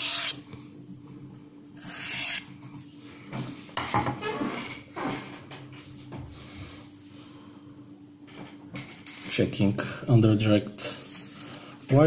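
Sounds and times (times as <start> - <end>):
knife scraping on sharpening rod: 0.0 - 0.4, 1.8 - 2.5.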